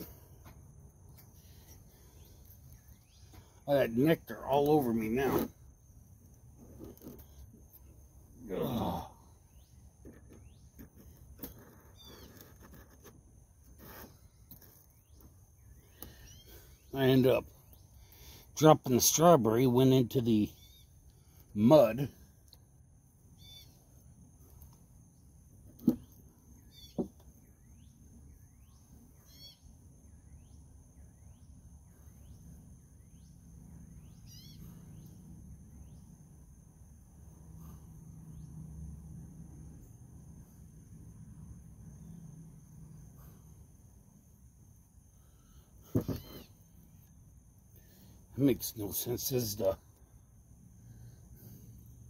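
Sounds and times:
high insect drone: 0.0 - 52.0
bird chirps: 1.1 - 3.6, 9.4 - 11.2, 11.8 - 12.5, 13.8 - 18.4, 20.4 - 21.4, 23.3 - 25.3, 25.9 - 36.2, 45.2 - 49.8
bird trills: 20.5 - 21.0, 23.4 - 23.8, 26.6 - 31.5, 33.9 - 35.2
high insect buzz: 28.7 - 51.8.

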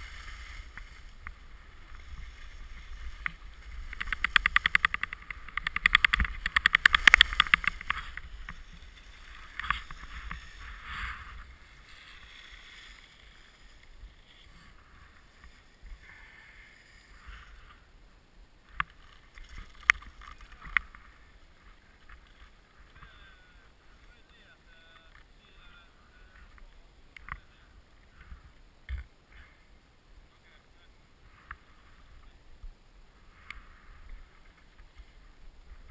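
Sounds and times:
skis scraping over snow: 0.0 - 17.9
sharp clicks: 3.2 - 8.6.

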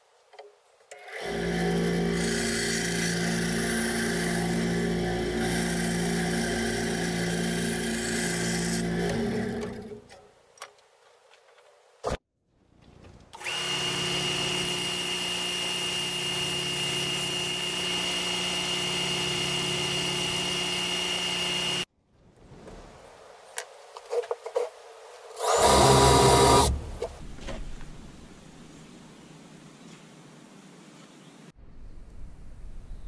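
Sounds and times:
cordless drill boring into board: 0.9 - 10.0, 13.4 - 21.9, 25.4 - 26.8
belt sander whining: 0.9 - 10.1, 13.4 - 21.9, 25.4 - 27.2.

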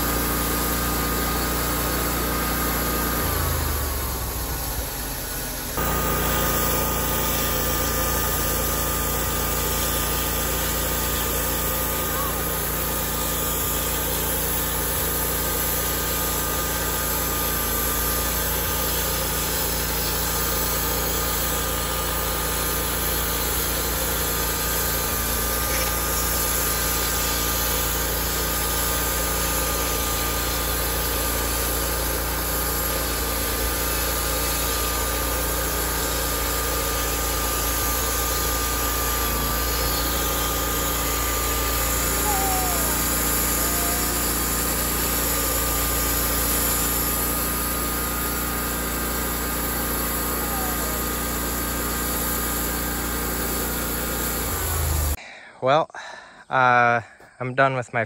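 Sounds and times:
band saw cutting through log: 0.0 - 55.2
engine running under load: 0.0 - 55.2.

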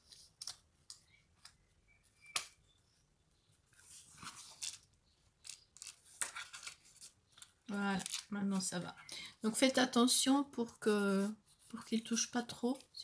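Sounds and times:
paper rustling: 3.7 - 8.7.

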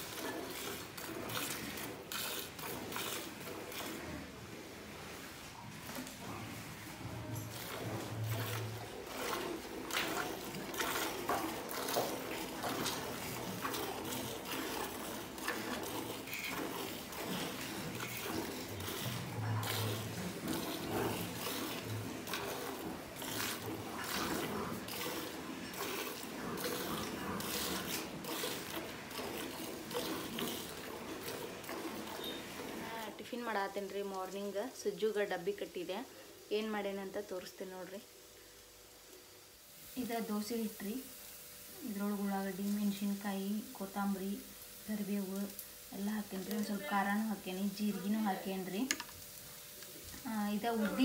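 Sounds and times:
milk squirting into a bucket: 0.0 - 4.4, 6.9 - 33.2.

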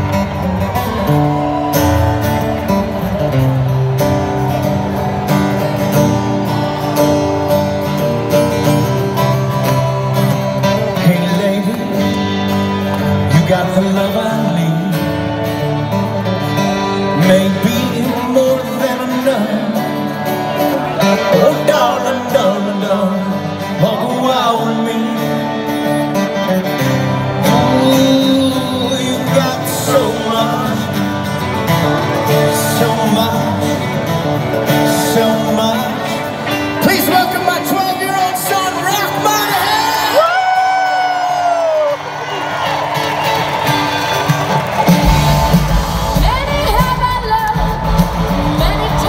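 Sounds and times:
strummed acoustic guitars: 0.0 - 40.2, 42.1 - 49.0
electric guitar: 0.0 - 49.0
live rock band playing: 0.0 - 49.0
male lead vocal: 10.8 - 12.4, 13.2 - 15.4, 16.9 - 26.0, 27.3 - 41.9
drums: 39.7 - 49.0.

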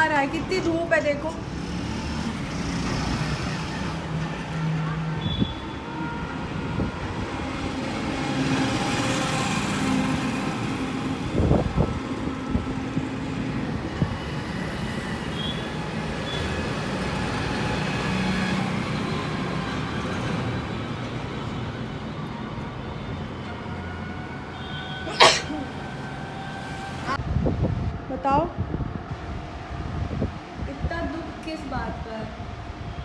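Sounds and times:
road traffic passing: 0.0 - 33.0.

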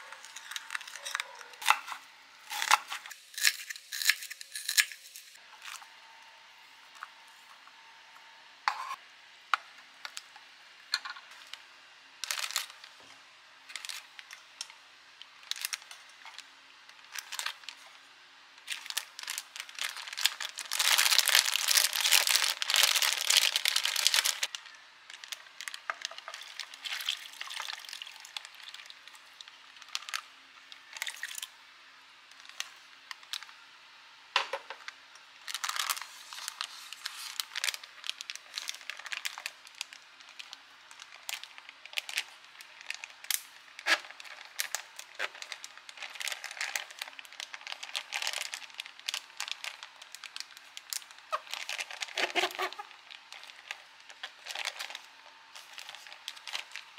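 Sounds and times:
plastic bag crinkling: 0.0 - 3.2, 12.2 - 13.0, 13.7 - 14.4, 15.4 - 18.0, 18.6 - 30.2, 35.4 - 56.9.

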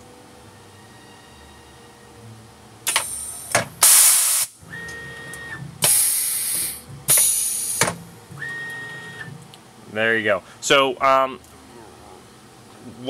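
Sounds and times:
steady machine whine: 0.0 - 12.4
bursts of hissing air: 2.9 - 4.6, 5.8 - 8.6.

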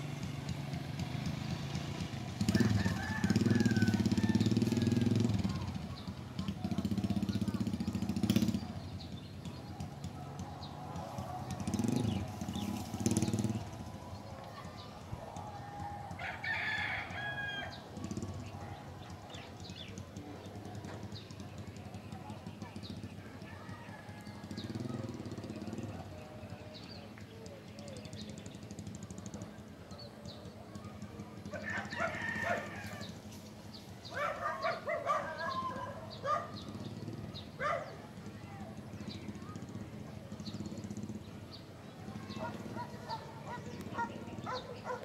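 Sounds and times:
rooster crowing: 2.4 - 5.1, 15.4 - 17.8, 31.6 - 33.1.

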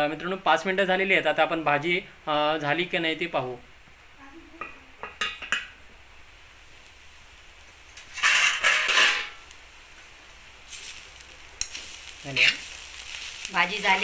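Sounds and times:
metal spatula scraping a pan: 8.0 - 9.5, 11.6 - 13.3.

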